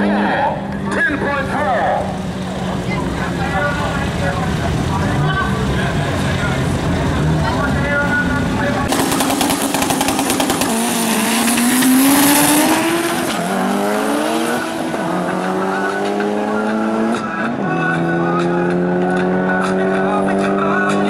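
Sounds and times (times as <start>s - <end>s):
car engines revving: 0.0s - 21.0s.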